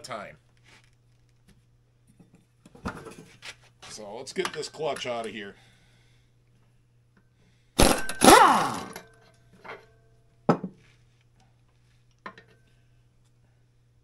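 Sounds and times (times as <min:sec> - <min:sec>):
handheld power tool whirring: 0:07.8 - 0:09.0.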